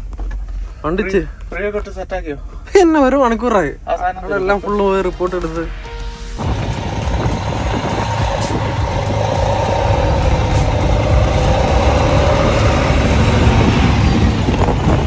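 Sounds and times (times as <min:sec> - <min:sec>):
diesel truck engine idling: 0:06.4 - 0:15.0.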